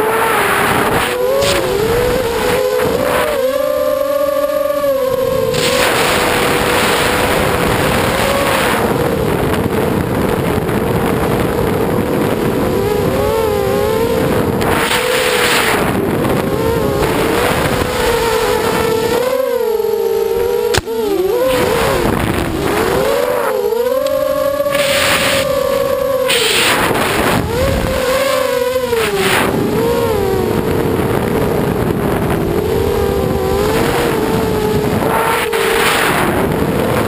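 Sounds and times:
electric motors whining: 0.0s - 37.0s
sharp click: 20.7s - 21.0s.

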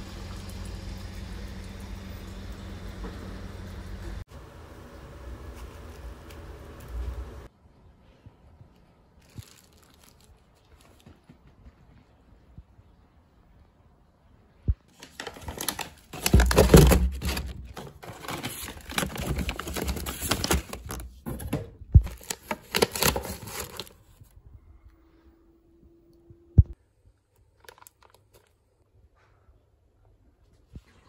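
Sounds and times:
plastic packing crackling: 9.2s - 10.9s, 14.9s - 24.2s, 27.5s - 28.6s.

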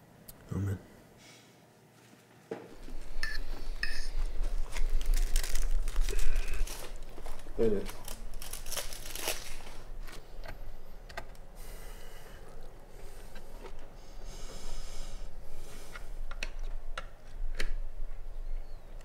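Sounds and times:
low steady hum: 0.0s - 19.0s
paper rustling and crinkling: 4.2s - 10.4s.

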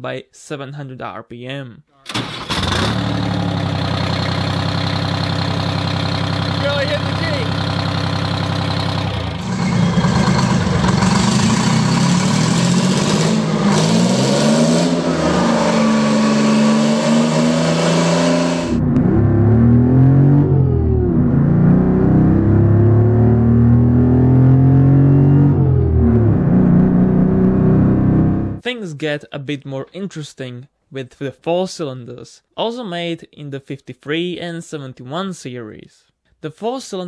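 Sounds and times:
diesel engine revving: 2.1s - 28.6s.

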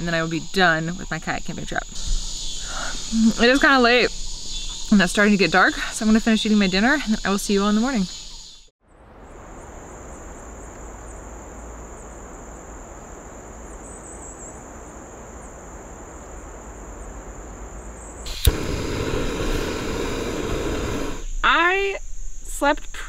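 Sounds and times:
insects trilling: 0.0s - 23.0s
steady rushing noise: 18.3s - 21.3s.

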